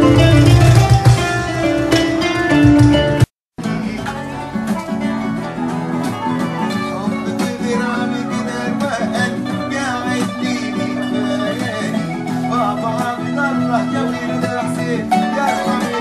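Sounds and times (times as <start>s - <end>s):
acoustic guitar accompaniment: 0.0s - 16.0s
plucked qanun melody: 0.0s - 16.0s.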